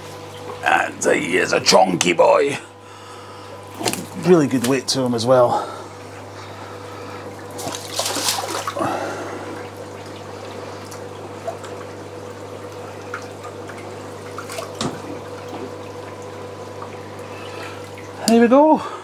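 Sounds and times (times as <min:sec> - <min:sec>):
steady low hum: 0:00.0 - 0:19.0
water splashing and trickling: 0:07.0 - 0:18.8.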